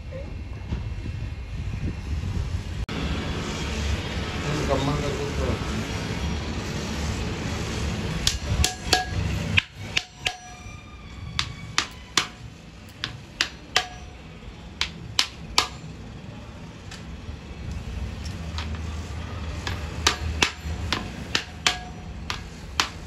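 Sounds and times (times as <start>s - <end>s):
hammer tapping metal tool: 8.2s - 15.9s, 19.6s - 23.0s.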